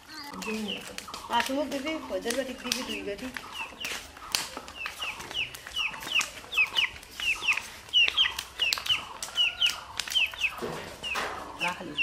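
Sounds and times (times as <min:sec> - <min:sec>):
chickens chirping: 0:00.0 - 0:12.0
sharp taps: 0:00.3 - 0:11.3.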